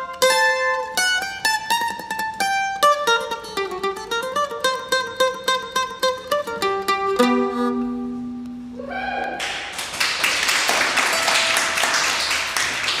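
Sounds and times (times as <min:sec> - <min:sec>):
bouzouki played with a pick: 0:00.0 - 0:08.8
people clapping: 0:09.2 - 0:13.0.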